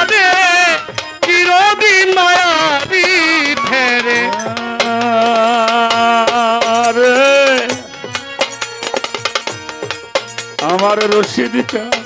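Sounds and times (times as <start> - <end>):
instrumental accompaniment: 0.0 - 12.0
hand-drum strokes: 1.3 - 10.0
person singing long note: 3.2 - 5.0.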